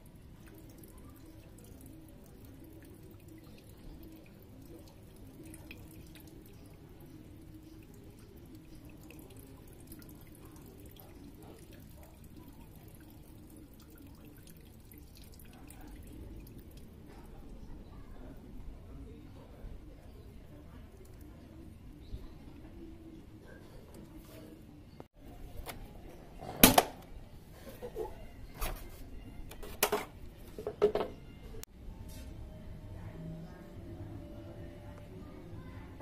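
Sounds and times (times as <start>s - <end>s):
fuel trickling into a container: 0.0s - 17.6s
drip ticks: 0.4s - 12.0s.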